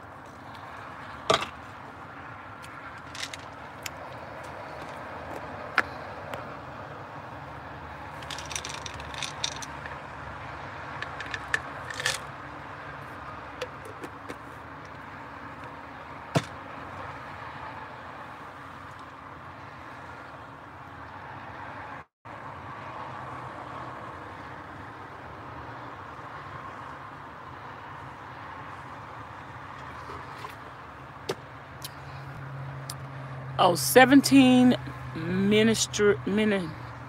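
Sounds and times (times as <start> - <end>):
objects clicking and rattling: 3.0 - 4.0, 8.2 - 10.0, 11.0 - 12.3.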